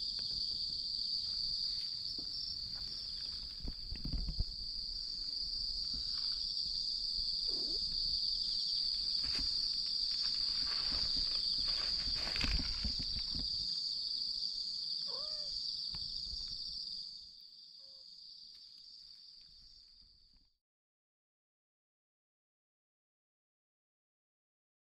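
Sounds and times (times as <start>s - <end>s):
crickets trilling: 0.0s - 20.4s
rustling and scuffing: 8.9s - 13.6s.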